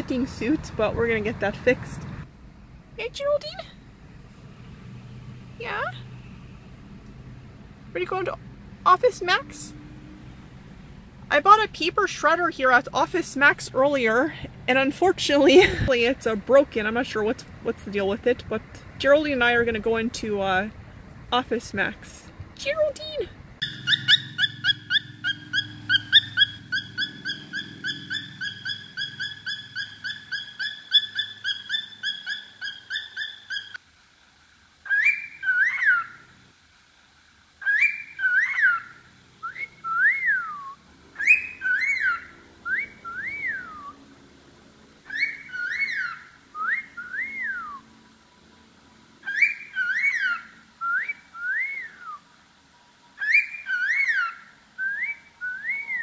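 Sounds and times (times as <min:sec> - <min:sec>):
cockatiel calling: 0:23.6 - 0:33.8, 0:34.9 - 0:36.2, 0:37.6 - 0:40.6, 0:41.2 - 0:44.0, 0:45.0 - 0:47.8, 0:49.2 - 0:52.0, 0:53.2 - 0:56.0.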